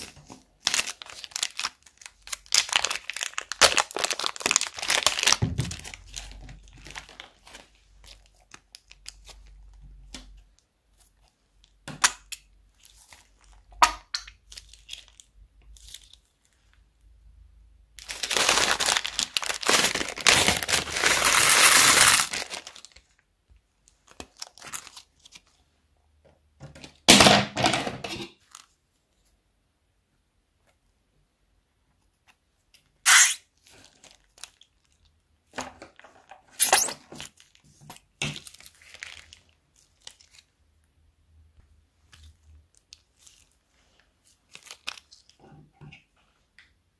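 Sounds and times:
plastic bags crinkling and tearing: 0.0s - 9.8s, 12.7s - 16.7s, 18.0s - 23.2s, 23.8s - 25.6s, 33.0s - 35.2s, 35.8s - 40.6s, 42.1s - 45.4s.

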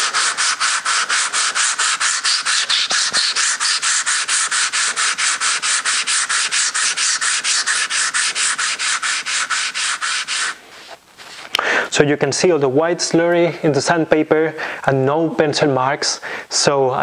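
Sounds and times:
stone scrubbing on wet sandpaper: 0.0s - 11.4s.

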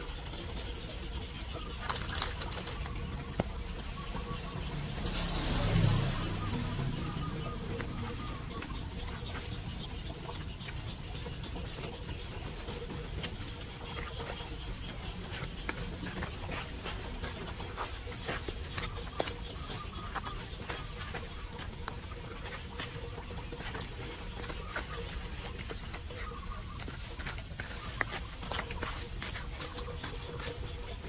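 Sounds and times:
small sharp ticks and taps: 8.5s - 31.0s.

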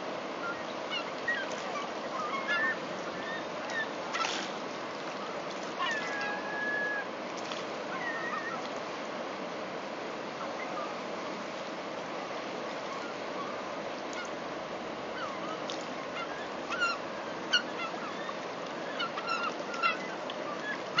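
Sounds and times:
seagulls squawking: 0.4s - 4.3s, 5.8s - 7.1s, 7.9s - 8.7s, 15.1s - 21.0s.

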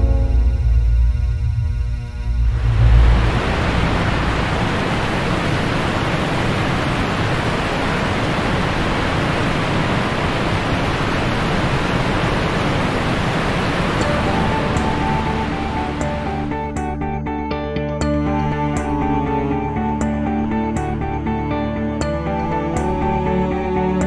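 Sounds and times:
river water rushing: 2.6s - 16.6s.

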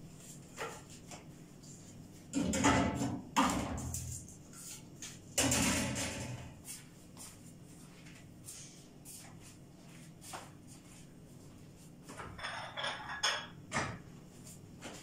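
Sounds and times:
kitchen scraping and rustling: 12.1s - 13.6s.

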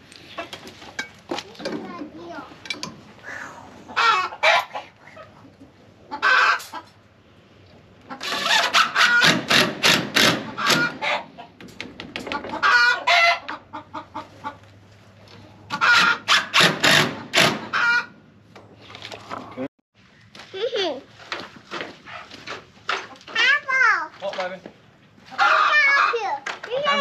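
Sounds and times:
chickens cackling: 3.3s - 7.1s, 8.0s - 11.6s, 12.2s - 14.7s, 15.4s - 18.3s, 25.2s - 26.3s.

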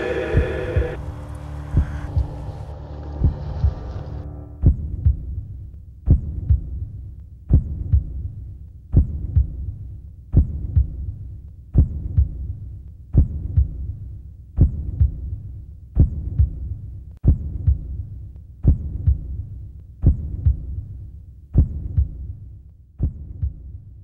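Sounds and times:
low hum: 0.0s - 5.8s
heartbeat thumps: 0.0s - 24.0s.

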